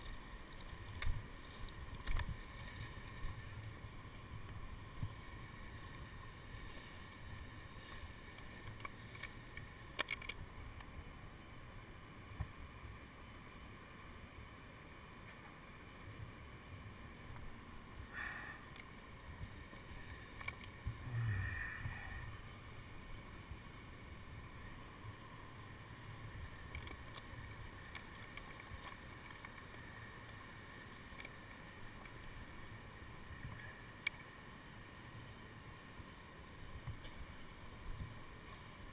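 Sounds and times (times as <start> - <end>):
wind rumbling on microphone: 0.0 - 10.8, 19.2 - 30.7, 36.6 - 38.9.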